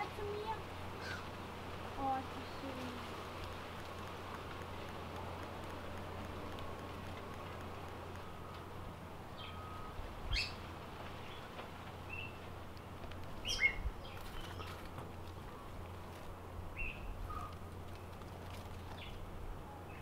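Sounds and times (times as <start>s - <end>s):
birds chirping: 0.0s - 20.0s
low steady hum: 0.0s - 20.0s.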